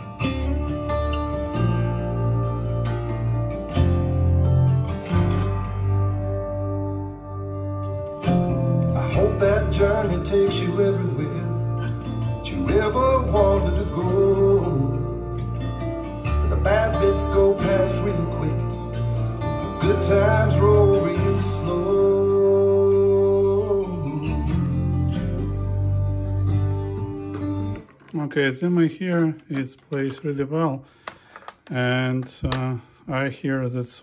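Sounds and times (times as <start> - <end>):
song with guitar and bass: 0.0 - 28.2
person singing: 8.9 - 15.6, 16.3 - 24.8.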